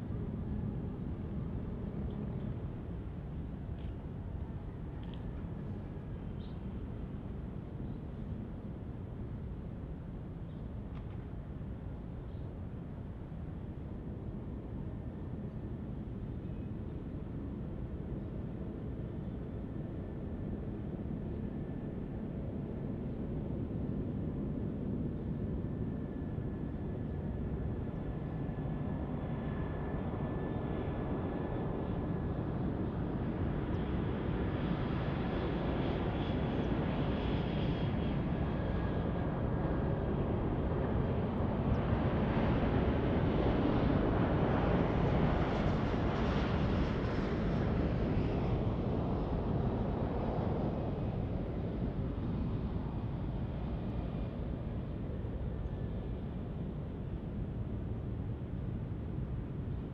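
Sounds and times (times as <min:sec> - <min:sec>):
faint high jet whine: 0:00.0 - 0:59.9
jet aircraft rumble: 0:23.8 - 0:59.9.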